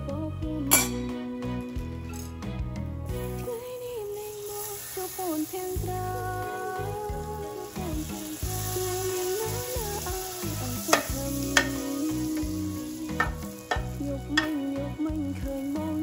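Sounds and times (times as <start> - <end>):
background music: 0.0 - 16.0
butter sizzling in pan: 3.1 - 16.0
metal spatula clicking on pan: 10.9 - 12.0, 13.2 - 14.6.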